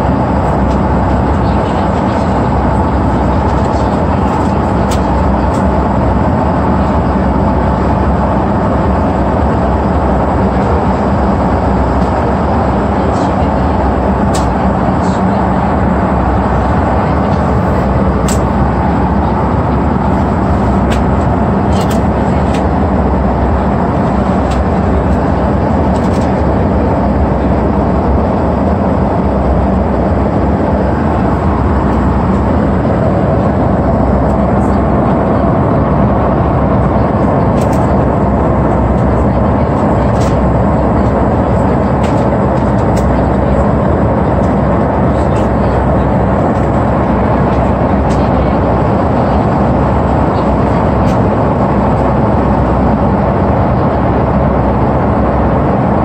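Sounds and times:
airliner cabin drone: 0.0 - 56.0.

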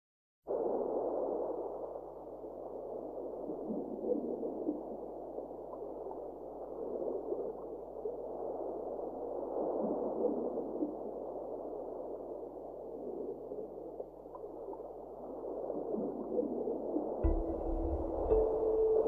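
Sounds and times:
muffled background music: 17.2 - 19.0.

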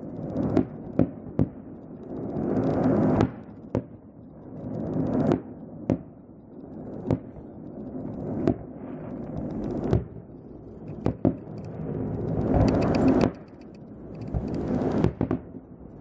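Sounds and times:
firework shells bursting: 0.0 - 16.0
rushing noise: 8.9 - 15.2.

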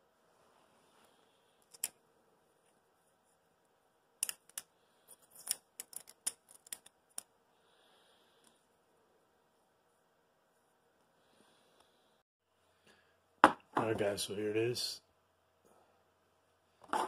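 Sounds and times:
plastic parts clicking together: 1.6 - 2.0, 4.2 - 4.7, 5.3 - 7.3.

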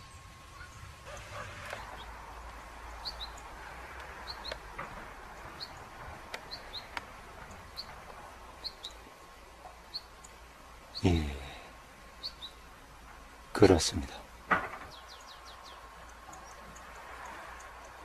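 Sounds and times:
faint hiss: 0.0 - 18.0
small birds chirping: 0.0 - 18.0
sharp clicks: 4.0 - 4.9.

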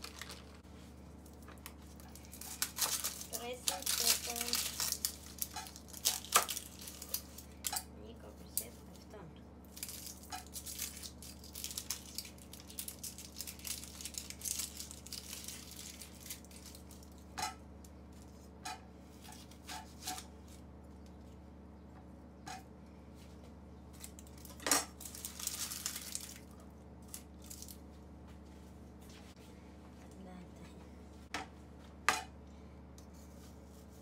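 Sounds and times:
onion skin rustling: 0.0 - 7.7, 9.7 - 17.2, 23.9 - 28.0
onion skin crackling: 0.0 - 7.8, 9.6 - 17.3, 23.9 - 27.8.

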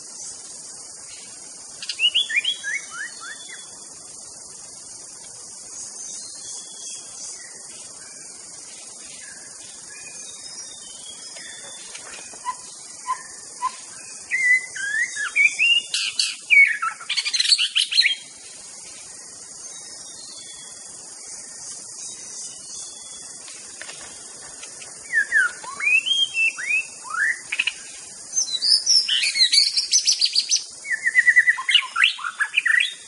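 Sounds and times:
bird whistling and trilling: 1.8 - 3.7, 11.1 - 18.2, 25.1 - 27.8, 28.4 - 33.0.

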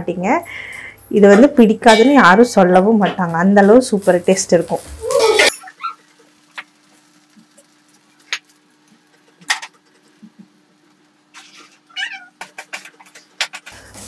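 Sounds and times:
faint steady hum: 0.0 - 1.2
oil popping and crackling: 3.2 - 14.0.

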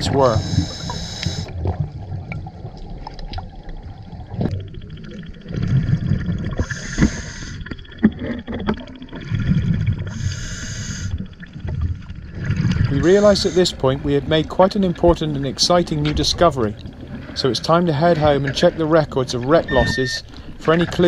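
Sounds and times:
exhaled bubbles rushing: 0.0 - 10.4, 11.1 - 15.7
diver breathing through regulator: 0.3 - 1.6, 6.6 - 7.7, 10.1 - 11.2.

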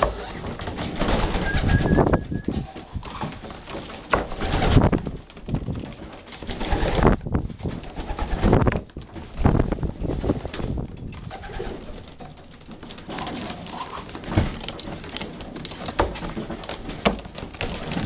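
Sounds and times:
pigeons cooing: 1.1 - 3.3.

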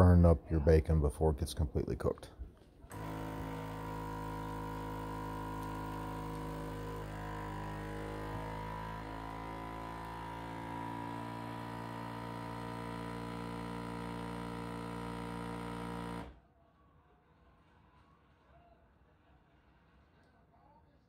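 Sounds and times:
vacuum sealer pump humming: 2.9 - 16.4.

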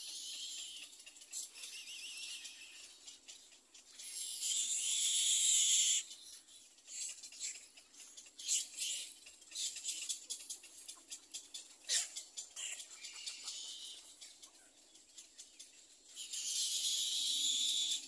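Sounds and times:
bird nestlings high hissy calls: 4.0 - 6.1, 16.2 - 18.0.

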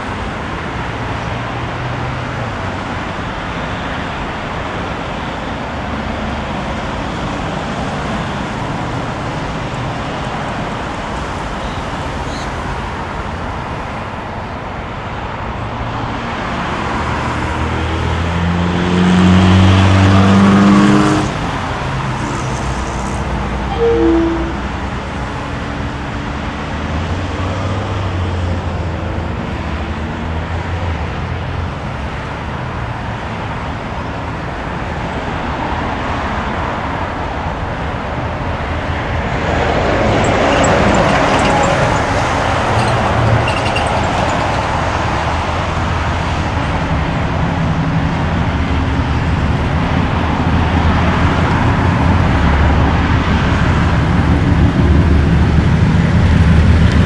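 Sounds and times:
road traffic noise: 0.0 - 57.0
diesel locomotive engines droning: 21.6 - 26.2, 36.4 - 57.0.

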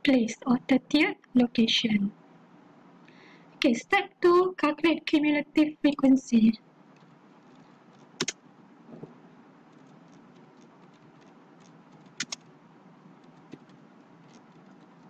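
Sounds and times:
ceiling fan humming: 5.2 - 15.0
computer keystrokes: 7.9 - 8.4, 9.8 - 12.5
sharp double clicks: 12.2 - 12.4.

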